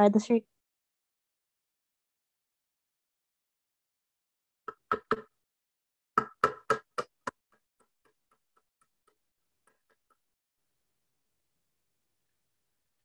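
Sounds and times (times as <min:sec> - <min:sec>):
hammer striking nails: 0:06.2 - 0:07.3.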